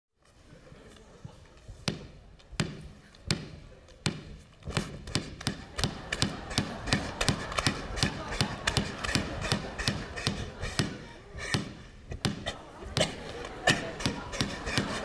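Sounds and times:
ball bouncing on hard floor: 0:01.8 - 0:05.6.

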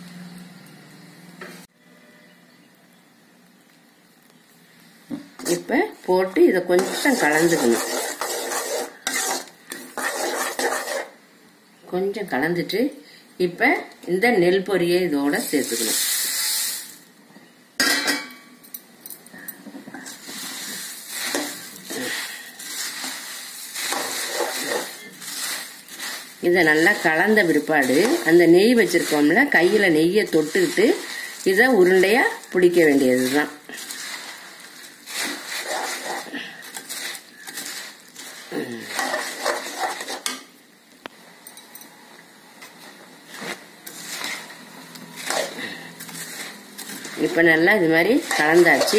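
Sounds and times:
metal spoon scraping a metal pan: 0:05.4 - 0:05.6, 0:06.7 - 0:11.2, 0:21.2 - 0:40.4, 0:45.2 - 0:48.9
spoon scraping and clinking on pan: 0:06.8 - 0:11.1, 0:23.8 - 0:26.2, 0:35.1 - 0:40.4, 0:48.2 - 0:48.9
grain rustling and crunching: 0:20.0 - 0:40.1, 0:45.2 - 0:48.9.

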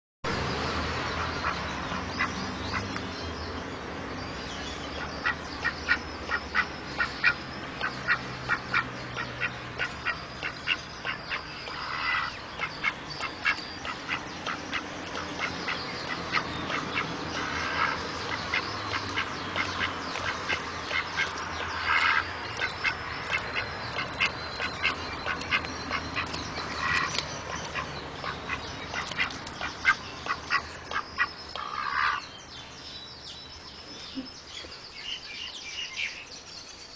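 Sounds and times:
duck quacking: 0:08.0 - 0:32.2.

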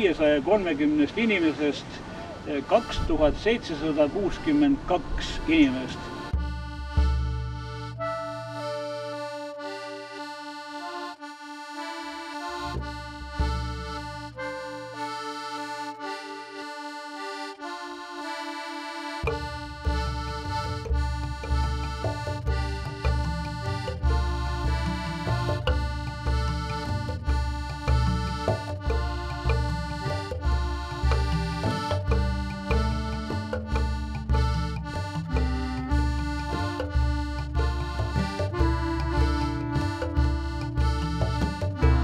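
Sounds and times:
accordion melody over drone: 0:00.0 - 0:42.0.

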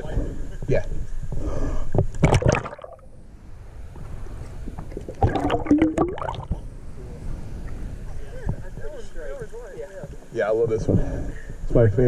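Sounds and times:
camera splashing into water: 0:02.2 - 0:02.9
underwater gurgling and bubbling: 0:02.2 - 0:03.1, 0:04.9 - 0:06.6.

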